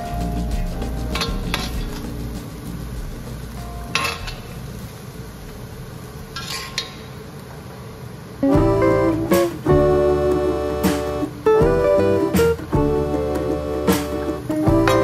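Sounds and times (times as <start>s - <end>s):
food sizzling in a wok: 1.1s - 8.6s
metal spatula scraping a wok: 6.4s - 7.0s.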